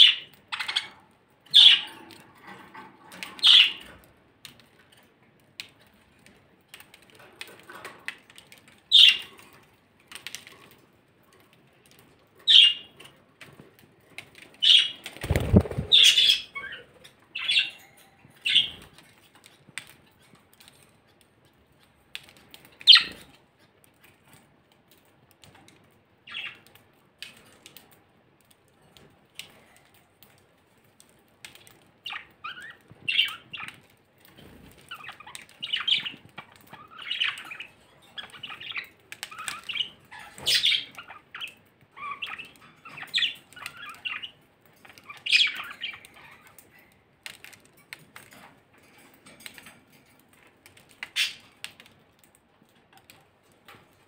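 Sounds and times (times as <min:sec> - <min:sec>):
budgerigars chirping and squawking: 0:00.0 - 0:04.0, 0:08.9 - 0:09.3, 0:12.4 - 0:13.0, 0:14.6 - 0:18.9, 0:22.8 - 0:23.3, 0:26.3 - 0:26.6, 0:32.0 - 0:33.8, 0:34.4 - 0:46.7, 0:51.0 - 0:51.5.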